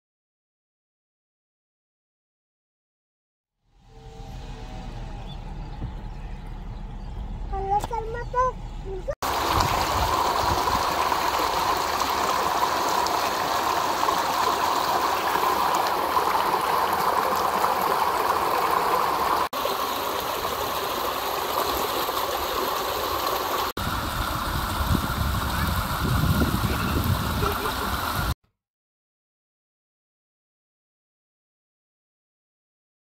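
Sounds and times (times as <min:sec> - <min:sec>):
water rushing over rocks: 0:09.2 - 0:28.4.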